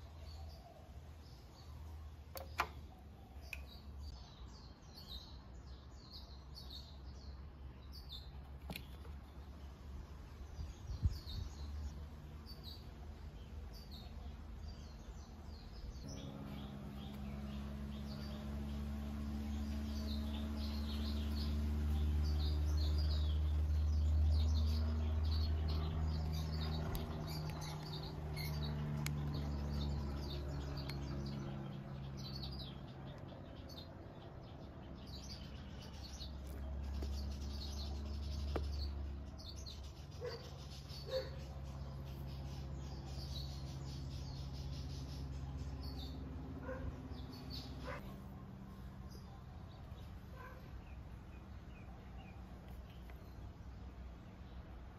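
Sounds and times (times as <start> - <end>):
small birds chirping: 0.0 - 54.9.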